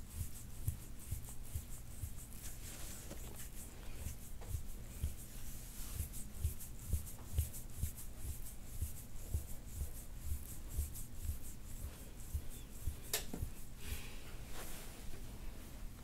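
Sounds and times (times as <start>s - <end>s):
tool scraping skin: 0.1s - 13.6s.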